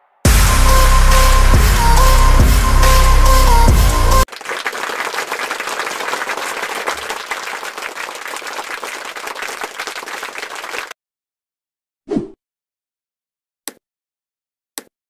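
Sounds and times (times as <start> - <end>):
crowd clapping: 3.4 - 11.0.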